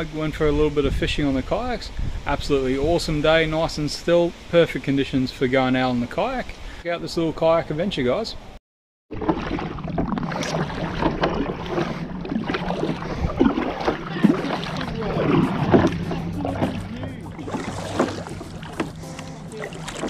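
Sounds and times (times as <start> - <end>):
paddle splashing: 9.1 - 20.0
water sloshing along hull: 9.1 - 20.0
steady low hum: 10.1 - 20.0.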